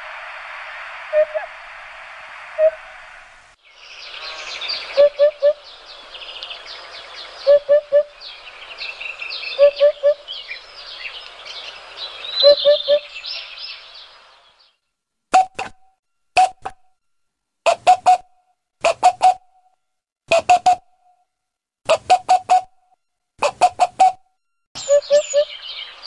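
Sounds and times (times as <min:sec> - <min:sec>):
steady hiss: 0:00.0 - 0:07.5, 0:10.2 - 0:14.5
small birds chirping: 0:03.6 - 0:14.8, 0:24.8 - 0:26.0
three-note bird call: 0:12.3 - 0:13.9, 0:24.8 - 0:26.0.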